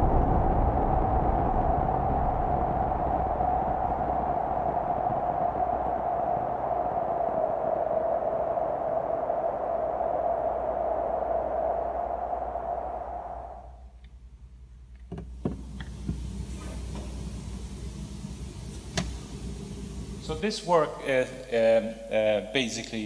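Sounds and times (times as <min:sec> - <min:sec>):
hissy synthesized tone: 0:16.3 - 0:23.0.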